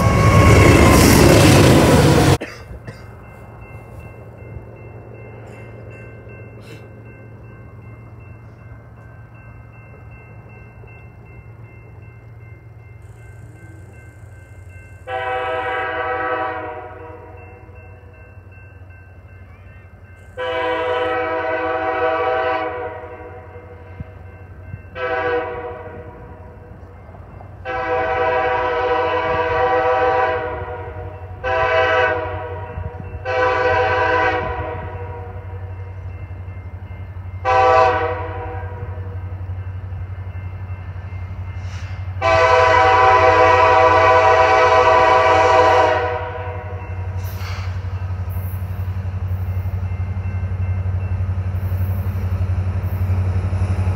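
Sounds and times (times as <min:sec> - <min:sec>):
train low rumble: 0:00.0 - 0:53.9
locomotive air horn blasts: 0:15.1 - 0:17.4, 0:20.4 - 0:23.6, 0:25.0 - 0:26.5, 0:27.6 - 0:35.6, 0:37.4 - 0:39.2, 0:41.7 - 0:46.8.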